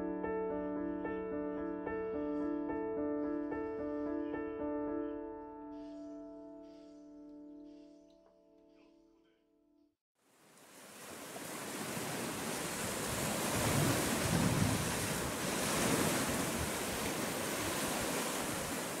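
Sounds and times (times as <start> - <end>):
waves washing onto pebble beach: 10.5 - 19.0
wind buffeting microphone: 11.4 - 19.0.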